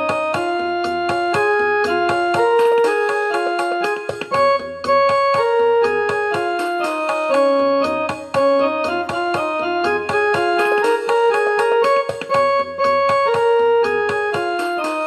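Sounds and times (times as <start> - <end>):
piano melody: 0.0 - 15.0.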